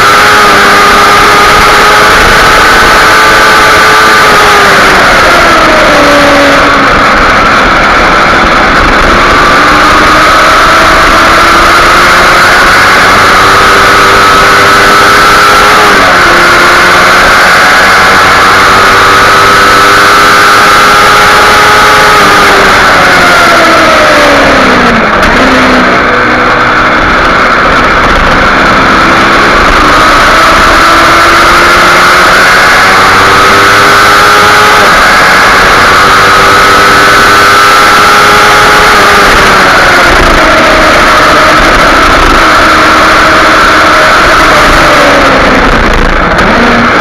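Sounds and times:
motorcycle engine at high revs: 0.0 - 47.0.

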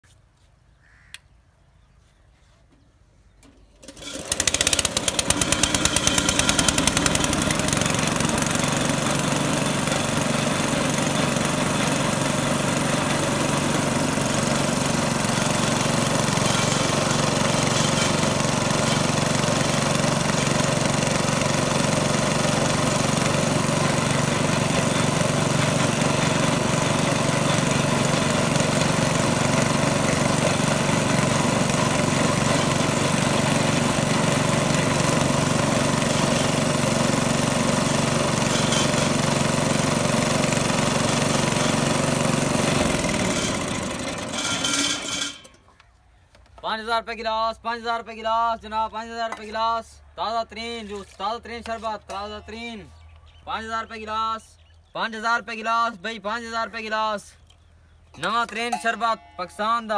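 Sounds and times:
small petrol engine running: 3.8 - 45.7.

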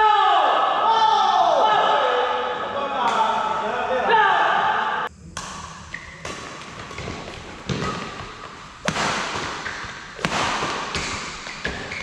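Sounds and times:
rackets hitting shuttlecock: 5.3 - 12.0.

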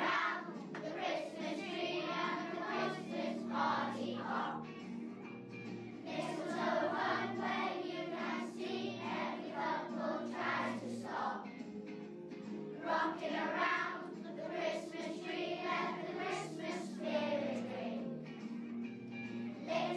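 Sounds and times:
children singing in unison: 0.0 - 4.7, 6.1 - 11.6, 12.8 - 18.2, 19.7 - 19.9
musical accompaniment: 0.0 - 19.9.

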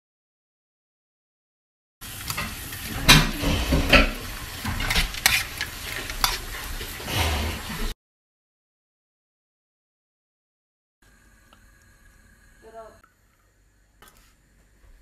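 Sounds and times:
vegetables sizzling in a frying pan: 2.0 - 7.9
spatula scraping a pan: 2.2 - 7.9.

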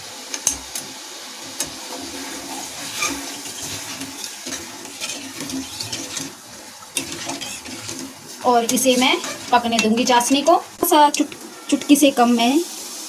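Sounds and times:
steady hiss: 0.0 - 13.0
ladle clinking and scraping pan: 1.6 - 12.0.

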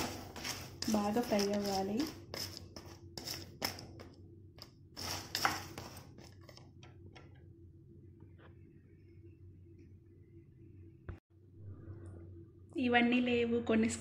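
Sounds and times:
spatula scraping in frying pan: 0.0 - 4.0, 5.0 - 6.5
low steady hum: 0.0 - 14.0.

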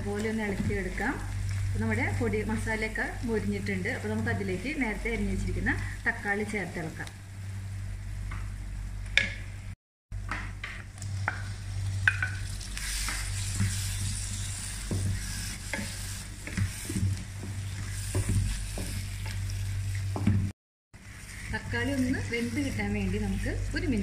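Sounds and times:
steady low hum: 0.0 - 24.0
food sizzling in oil: 10.9 - 20.2, 21.0 - 24.0
spatula scraping a pan: 12.8 - 20.1, 21.0 - 23.6.

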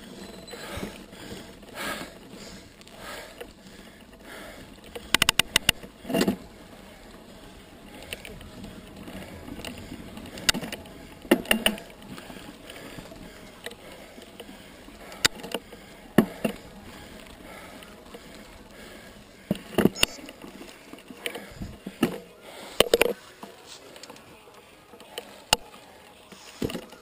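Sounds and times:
rumble of bike tyres on dirt: 0.0 - 27.0
bike knocks and rattles: 3.3 - 6.6, 8.0 - 13.7, 19.4 - 22.2.

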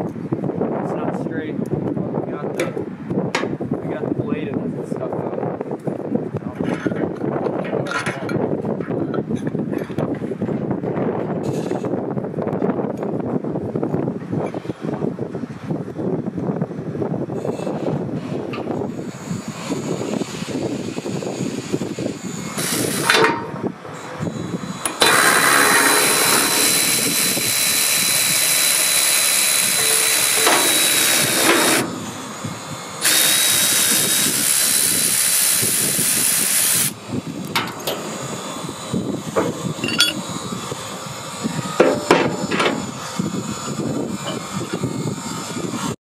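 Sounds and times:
cordless ratchet whining: 18.6 - 46.0
metal clinks: 39.8 - 40.2.

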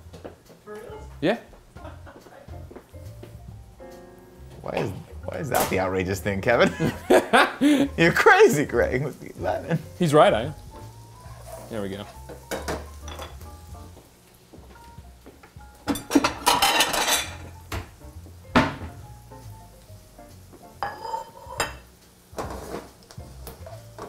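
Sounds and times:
metal tongs scraping frying pan: 16.0 - 17.6, 20.8 - 23.0.

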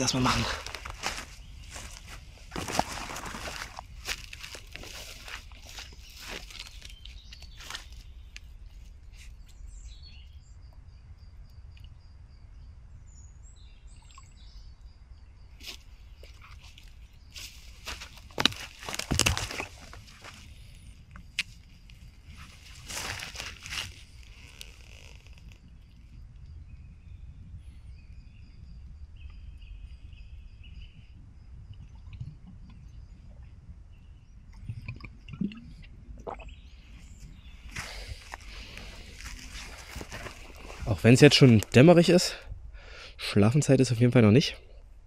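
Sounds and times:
bird calls and chirps: 5.2 - 11.0, 24.4 - 31.2
sharp crackle: 17.4 - 20.4, 21.2 - 26.0
songbird calling: 22.4 - 31.2.

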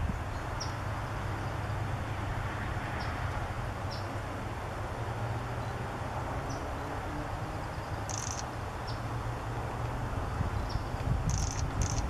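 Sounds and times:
faint bird chirps: 8.1 - 9.0, 10.6 - 12.0.

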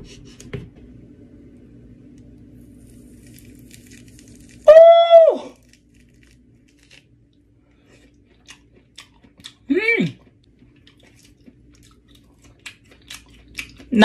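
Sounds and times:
orange peel tearing crackle: 2.6 - 9.0
man's falsetto exclamation: 4.7 - 5.5.

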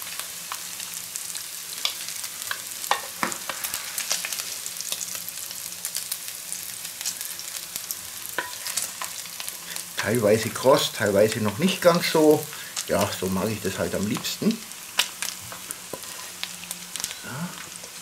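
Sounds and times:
bacon sizzling in a pan: 0.0 - 18.0.

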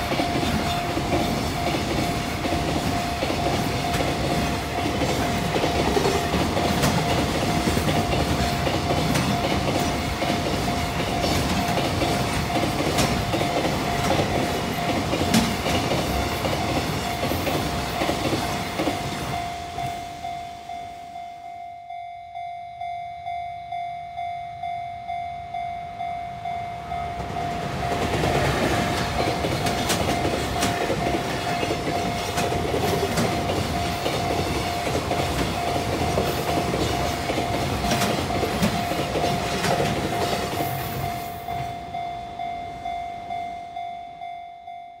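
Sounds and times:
train wheels clacking over rail joints: 0.0 - 19.4, 27.2 - 41.1
crossing bell dinging: 0.0 - 45.0.

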